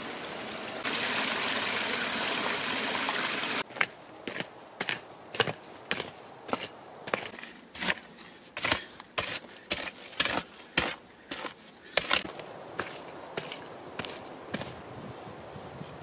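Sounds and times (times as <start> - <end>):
pick-mattock digging into clay: 3.7 - 14.7.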